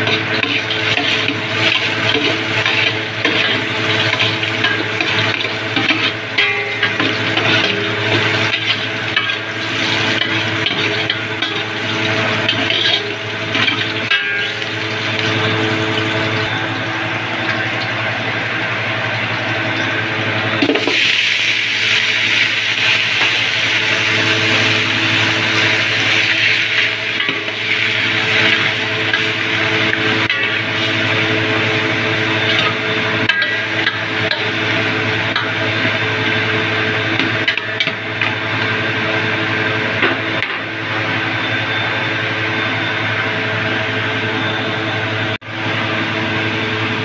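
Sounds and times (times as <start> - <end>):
meat sizzling in a hot pot: 0.0 - 16.4, 20.7 - 39.0
steady hum: 0.0 - 47.0.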